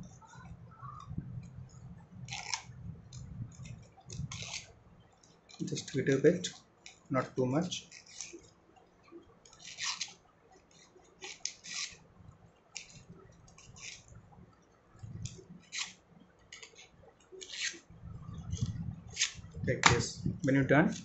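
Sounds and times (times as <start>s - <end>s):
scissors snipping paper: 3.6s - 4.7s, 9.5s - 12.0s.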